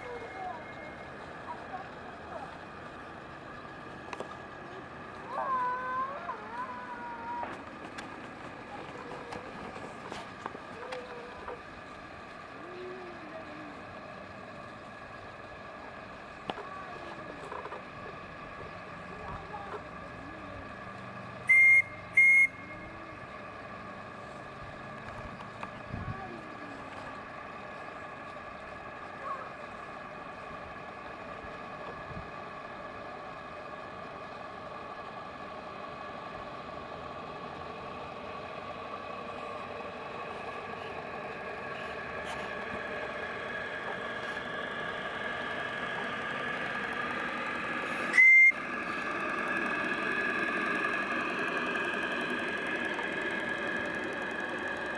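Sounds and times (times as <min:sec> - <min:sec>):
steady hum: 0:00.0 - 0:54.9
steam whistle toots: 0:21.5 - 0:22.8, 0:48.1 - 0:48.6.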